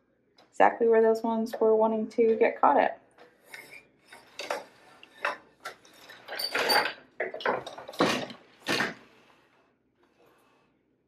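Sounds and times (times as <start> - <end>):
light wooden clatters of loom: 3.4 - 9.4.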